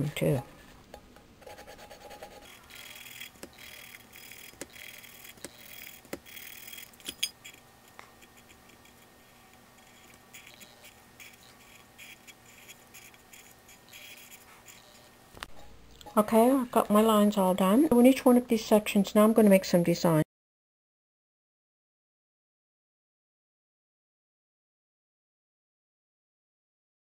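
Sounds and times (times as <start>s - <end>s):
marker scratching on paper: 1.4s - 15.1s.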